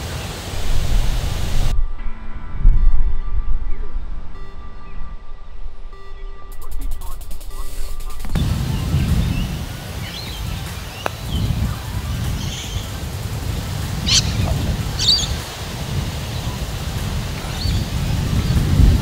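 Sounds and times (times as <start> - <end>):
low wind rumble on microphone: 0.0 - 6.5, 7.4 - 19.0
birds chirping: 6.1 - 19.0.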